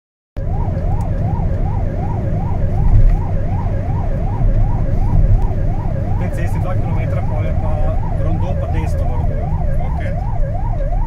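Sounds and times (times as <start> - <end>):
engine and road rumble: 0.4 - 11.0
yelp siren: 0.4 - 11.0.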